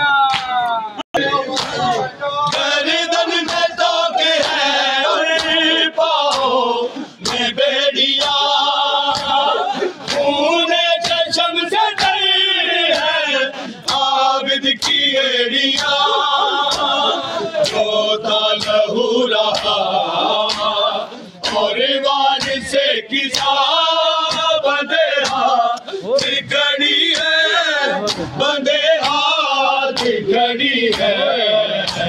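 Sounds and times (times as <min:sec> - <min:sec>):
men chanting in chorus: 0:01.2 - 0:32.0
hands beating on chests: 0:09.0 - 0:10.4.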